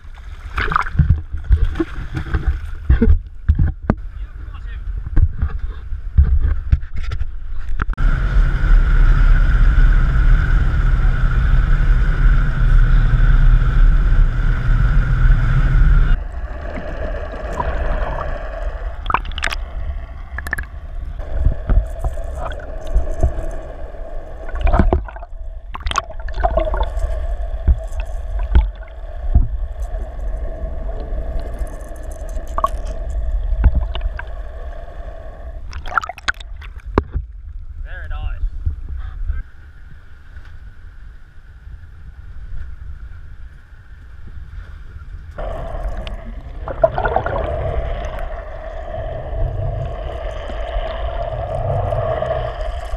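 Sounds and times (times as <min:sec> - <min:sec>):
water rushing and gurgling: 0:08.0 - 0:37.2, 0:45.4 - 0:52.9
boat engine through water: 0:08.0 - 0:37.4, 0:45.4 - 0:52.9
muffled underwater hum: 0:08.0 - 0:37.8, 0:42.5 - 0:52.9.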